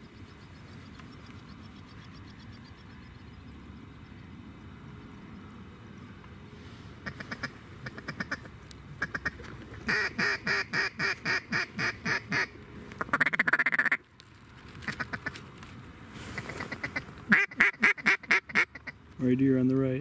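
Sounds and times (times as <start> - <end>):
duck call quacks: 9.0 - 14.0, 16.4 - 19.0
duck call feeding chatter: 16.4 - 19.0.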